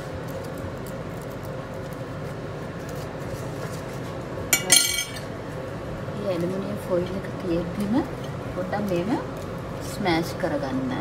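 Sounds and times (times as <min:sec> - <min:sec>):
spoon clinking on ceramic plate: 0:04.6 - 0:05.2.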